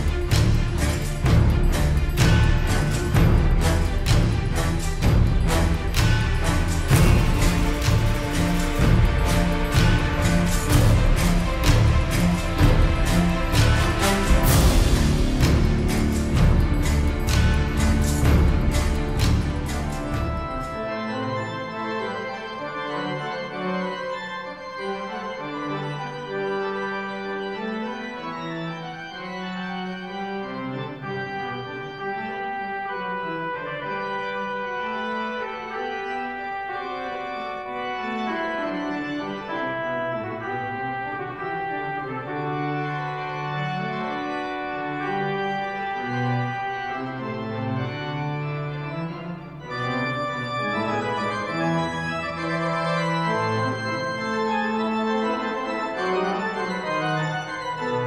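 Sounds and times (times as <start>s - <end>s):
pipe organ playing slow chords: 20.4s - 58.0s.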